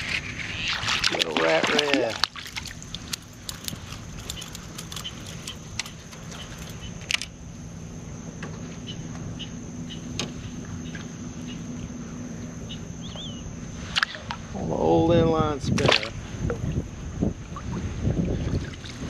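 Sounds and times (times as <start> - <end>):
fishing lure clicks and rattles: 3.0 - 7.3.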